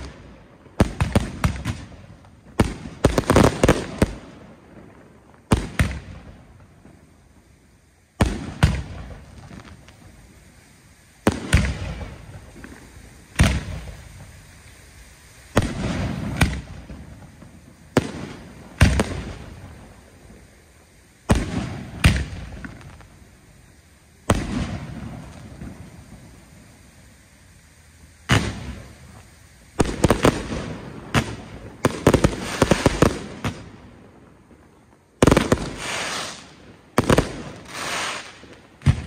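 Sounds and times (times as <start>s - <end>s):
firework shells booming: 0.0s - 7.1s, 8.2s - 10.1s, 11.2s - 14.5s, 15.5s - 20.5s, 21.2s - 23.4s, 24.2s - 26.5s, 28.2s - 39.0s.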